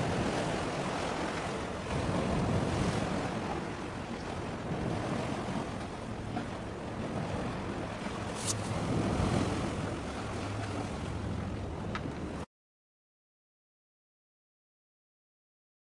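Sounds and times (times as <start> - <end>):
wind buffeting microphone: 0.0 - 12.4
sea wash: 0.0 - 12.5.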